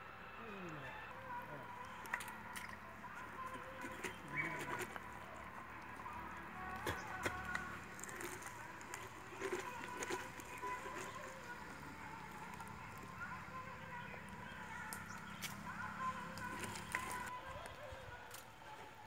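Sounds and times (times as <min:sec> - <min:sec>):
scraping pumpkin pulp: 0:03.2 - 0:13.1.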